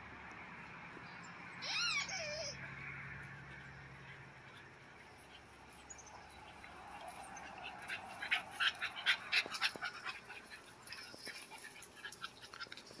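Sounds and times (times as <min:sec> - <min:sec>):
puppies panting: 0:03.2 - 0:13.0.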